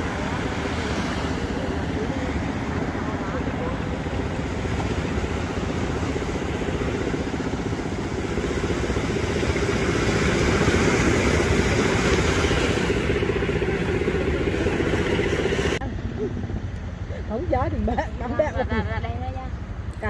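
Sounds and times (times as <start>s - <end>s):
surf breaking on shore: 0.0s - 15.8s
boat engine chugging: 0.0s - 19.3s.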